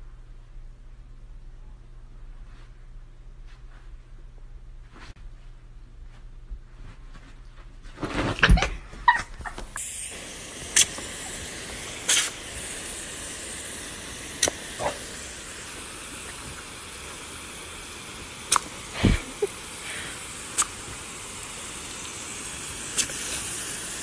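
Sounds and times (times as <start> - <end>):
hose nozzle spraying water: 9.7 - 24.0.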